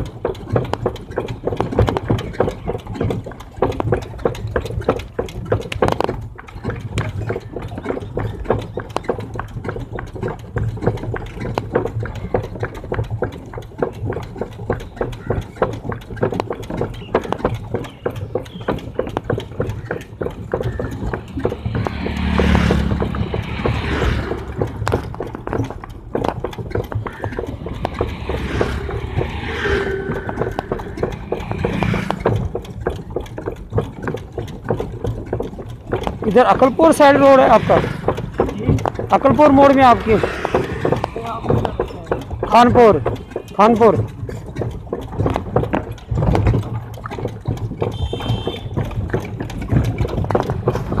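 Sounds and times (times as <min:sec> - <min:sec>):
cart knocking: 0:00.0 - 0:51.0
cart wheels rumbling: 0:00.0 - 0:51.0
horse hooves clip-clopping on pavement: 0:00.0 - 0:51.0
low rumble: 0:21.0 - 0:33.2, 0:37.3 - 0:42.5.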